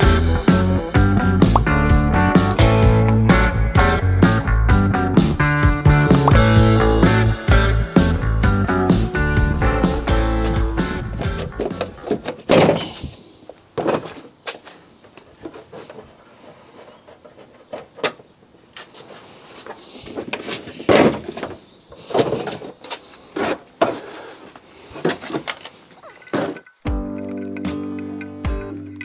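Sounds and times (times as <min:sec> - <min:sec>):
clunks and knocks: 0:11.2 - 0:13.0.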